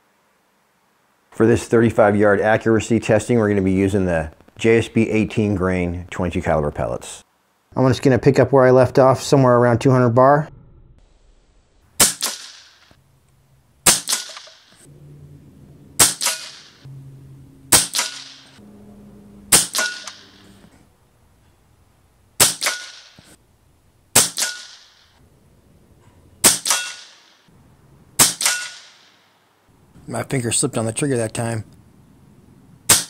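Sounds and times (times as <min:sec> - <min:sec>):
air rifle shots: 0:12.0 - 0:13.0, 0:13.8 - 0:14.9, 0:16.0 - 0:16.9, 0:17.7 - 0:18.6, 0:19.5 - 0:20.7, 0:22.4 - 0:23.4, 0:24.1 - 0:25.2, 0:26.4 - 0:27.5, 0:28.2 - 0:29.4.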